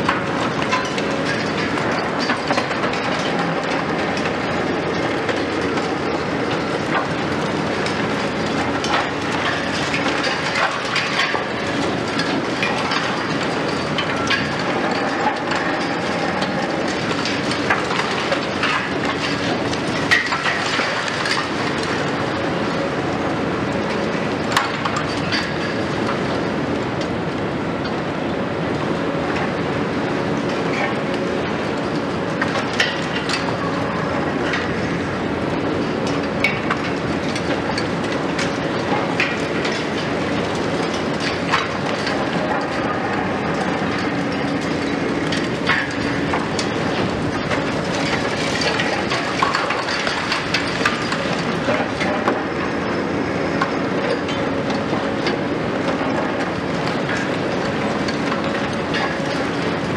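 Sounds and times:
concrete cracking and debris falling: 0.4s - 4.3s, 7.7s - 22.0s, 43.5s - 52.4s.

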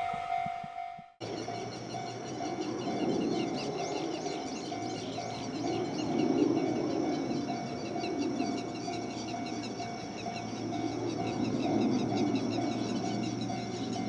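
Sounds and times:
pulsing mid-pitched tone: 0.0s - 1.1s
birds chirping rapidly: 1.2s - 14.0s.

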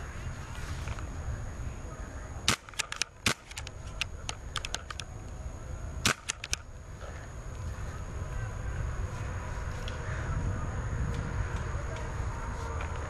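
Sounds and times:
paintball markers firing: 2.5s - 5.1s, 6.0s - 6.7s.

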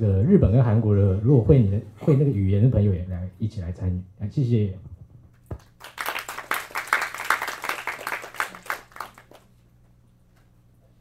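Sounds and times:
audience applauding: 5.6s - 9.5s.

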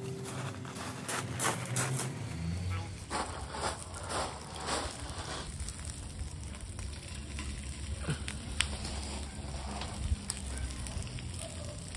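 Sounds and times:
fire crackling and popping: 0.0s - 11.9s
meat sizzling on a grill: 3.8s - 11.9s.

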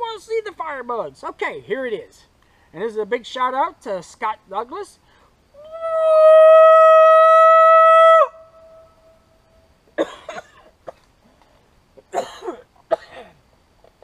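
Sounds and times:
rough coughs: 10.0s - 11.0s, 12.1s - 13.4s.

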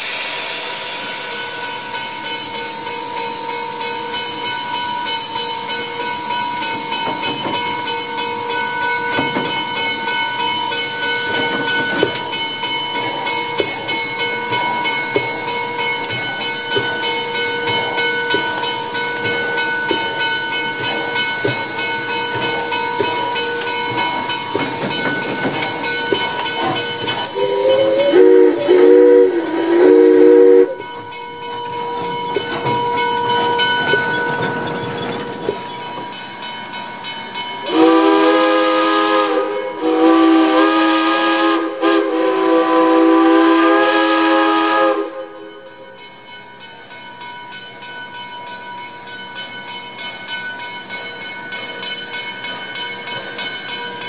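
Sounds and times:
steam hissing: 0.0s - 46.3s
steam whistle blasts: 27.2s - 30.9s, 37.6s - 45.8s.

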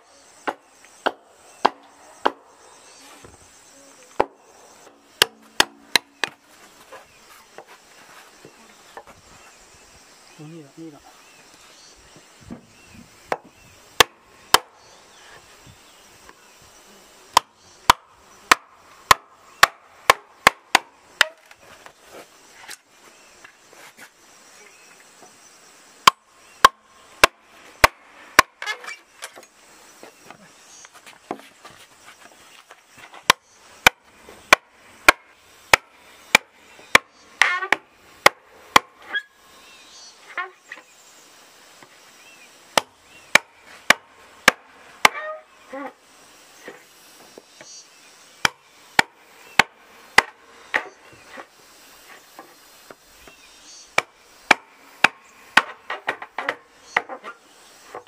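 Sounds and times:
wooden club striking machete: 4.2s - 4.4s, 5.2s - 6.4s, 13.3s - 14.7s, 17.3s - 21.6s, 26.0s - 29.5s, 33.2s - 39.3s, 42.8s - 45.9s, 48.4s - 51.5s, 54.0s - 58.0s.

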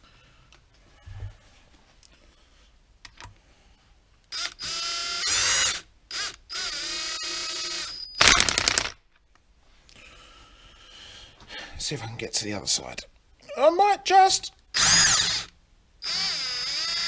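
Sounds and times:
cordless drill motor whine: 4.4s - 8.0s, 14.8s - 17.0s.

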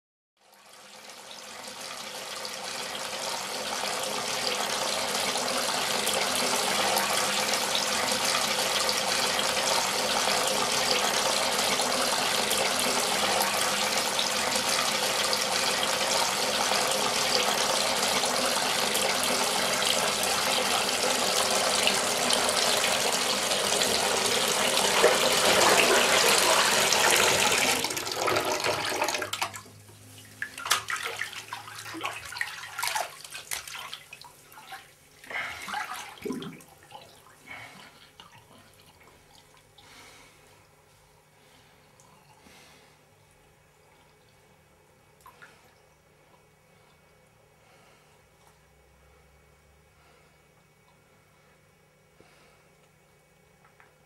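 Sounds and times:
tap water running into tub: 0.5s - 37.4s.

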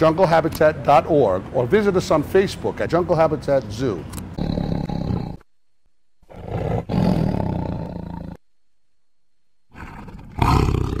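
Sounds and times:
big cat roaring: 4.4s - 5.4s, 6.2s - 8.4s, 9.7s - 11.0s.

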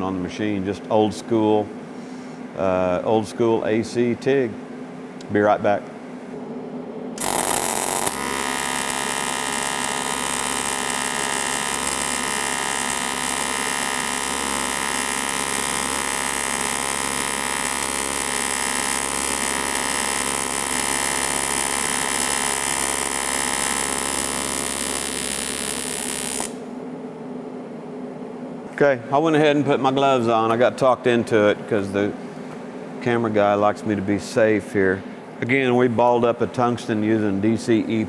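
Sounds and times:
welding arc hissing crackle: 7.2s - 26.7s
welding arc electric buzz: 7.2s - 26.8s.

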